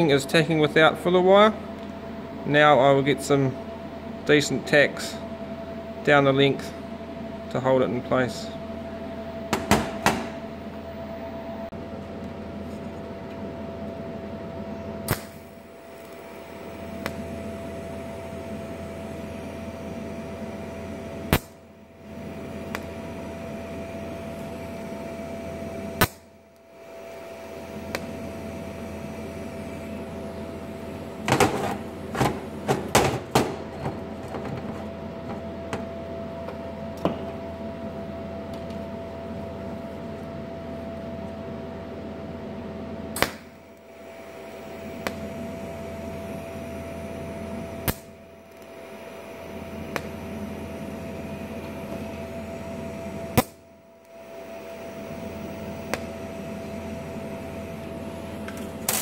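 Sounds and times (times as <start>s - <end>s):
welder electrical hum: 0.0s - 59.0s
sharp welding clicks: 15.1s - 15.4s, 21.3s - 21.6s, 26.0s - 26.3s, 47.8s - 48.7s.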